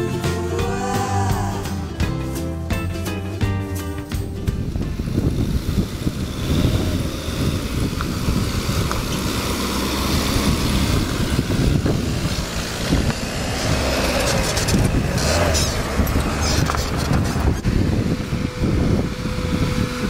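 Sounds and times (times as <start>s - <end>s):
pickup truck engine running: 1.5s - 20.0s
wind rumble on microphone: 4.3s - 20.0s.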